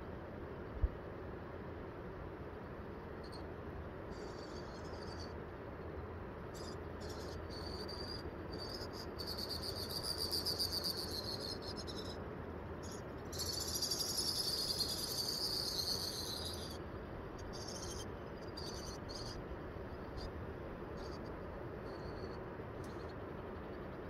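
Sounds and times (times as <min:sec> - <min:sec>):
low background hiss: 0:00.0 - 0:24.0
insect trilling: 0:04.1 - 0:05.3, 0:06.5 - 0:12.2, 0:12.8 - 0:16.8, 0:17.4 - 0:19.4, 0:21.0 - 0:23.2.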